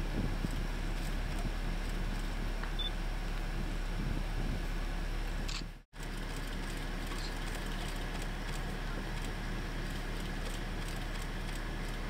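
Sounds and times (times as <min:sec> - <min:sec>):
boat engine drone: 0:06.0 - 0:12.0.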